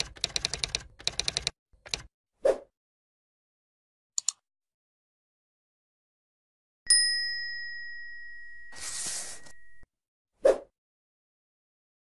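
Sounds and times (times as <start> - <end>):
double mouse click: 4.2 - 4.4
bright bell ding: 6.9 - 9.8.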